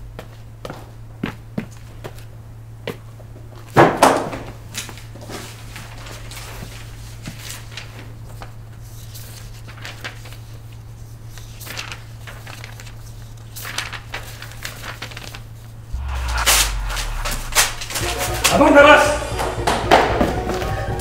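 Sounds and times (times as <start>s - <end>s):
paper rustling: 9.0s - 15.4s
paper crumpled by hand: 11.5s - 15.4s
steady low hum: 15.9s - 19.4s.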